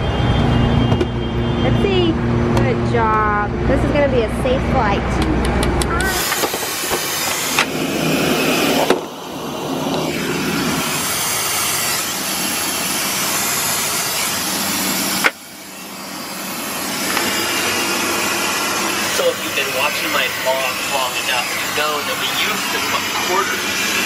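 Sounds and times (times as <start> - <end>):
air system hum: 0.0 - 24.0
jet engine roar: 0.0 - 24.0.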